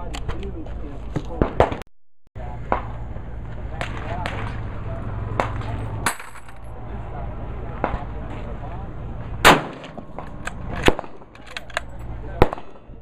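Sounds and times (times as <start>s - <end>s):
rifle shot: 9.4s - 11.3s, 12.4s - 12.9s
rifle bolt clacking: 10.2s - 12.0s.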